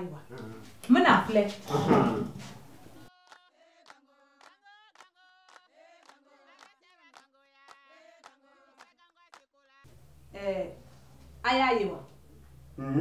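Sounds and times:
faint group singing: 1.7 - 9.1.

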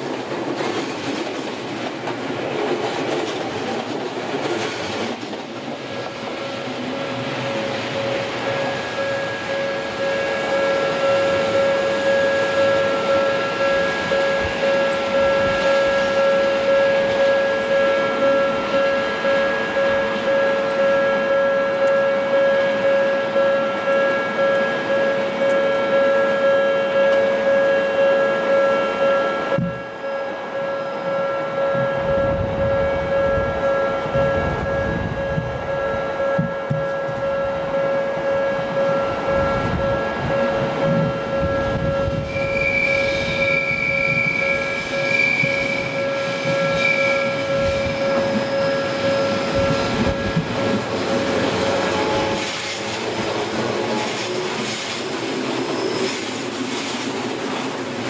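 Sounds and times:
train rumbling: 0.0 - 58.0
thin high tone: 6.2 - 56.8
level crossing bell ringing: 7.3 - 52.9.

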